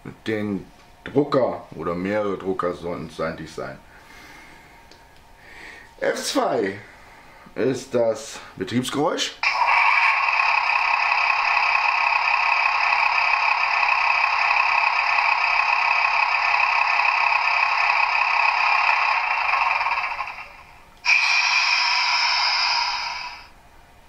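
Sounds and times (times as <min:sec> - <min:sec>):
model diesel engine sound from speaker: 0:09.4 - 0:23.5.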